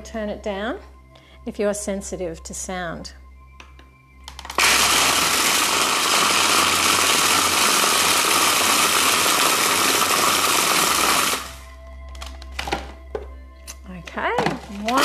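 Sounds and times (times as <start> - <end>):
food processor whirring: 4.5 - 11.6.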